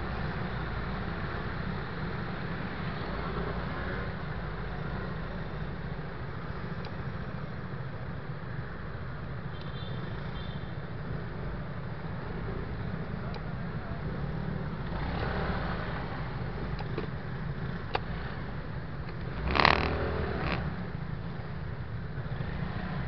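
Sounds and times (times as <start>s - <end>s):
road noise: 0.0s - 23.0s
scooter engines rumbling: 12.2s - 23.0s.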